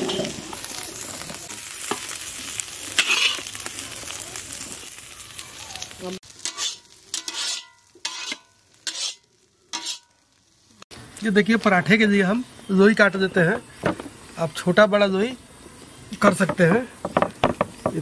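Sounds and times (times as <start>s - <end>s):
food sizzling: 0.0s - 18.0s
metal spatula scraping iron pan: 3.0s - 3.5s, 6.3s - 10.1s.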